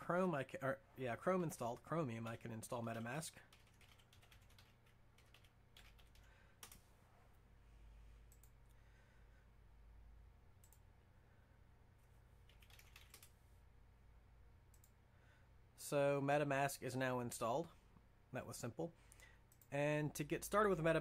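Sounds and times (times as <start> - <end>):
keyboard keystrokes: 12.5 - 13.3.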